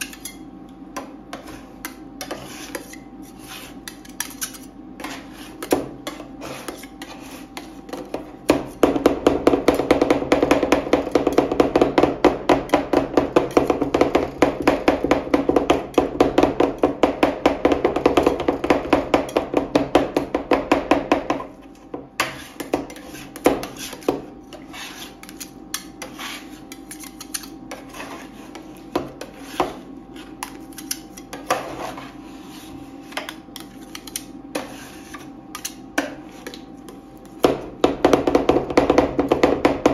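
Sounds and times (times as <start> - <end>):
spatula scraping cold plate: 0.0 - 0.5, 1.3 - 8.8, 22.2 - 37.4.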